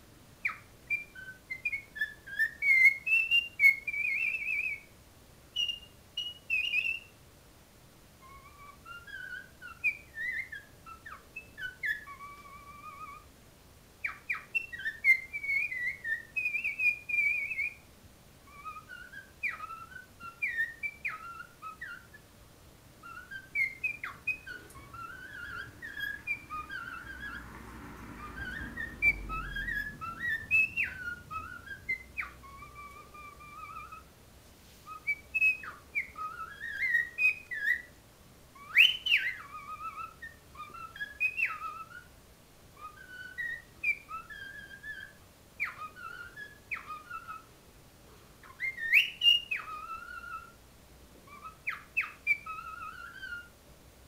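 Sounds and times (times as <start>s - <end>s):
cockatiel whistling: 0.4s - 4.9s, 5.5s - 7.2s, 8.2s - 13.3s, 14.0s - 22.3s, 23.0s - 34.1s, 34.8s - 47.6s, 48.4s - 50.6s, 51.2s - 53.6s
sharp bird chirps: 5.6s - 7.2s, 8.2s - 13.3s, 14.0s - 17.8s, 18.5s - 22.3s, 23.0s - 34.1s, 34.9s - 37.9s, 38.6s - 42.1s, 42.8s - 47.5s, 48.4s - 50.6s, 51.3s - 53.5s.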